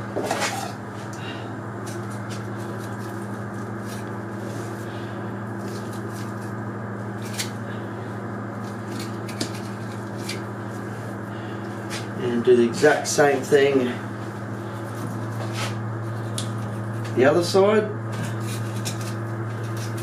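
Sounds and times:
machine hum: 0.0 - 20.0
knife scraping bone: 0.2 - 0.8, 5.6 - 7.6, 8.6 - 10.5, 18.2 - 20.0.

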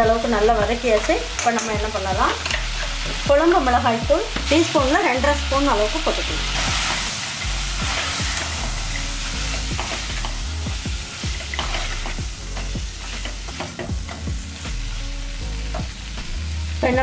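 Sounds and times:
food sizzling in hot oil: 0.0 - 17.0
metal spoon scraping a pan: 11.2 - 14.3.

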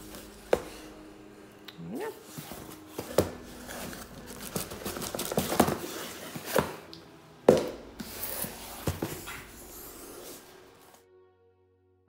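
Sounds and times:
cardboard rustling: 2.2 - 6.9, 7.5 - 11.0
boxes knocking on table: 3.0 - 6.8, 7.5 - 9.6.

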